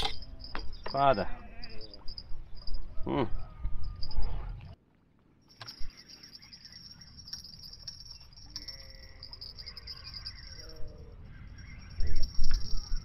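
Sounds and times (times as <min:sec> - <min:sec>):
high-pitched insect chirring: 0:00.1 - 0:04.4, 0:05.7 - 0:13.0
faint bleat-like animal calls: 0:01.3 - 0:01.9, 0:08.5 - 0:09.4.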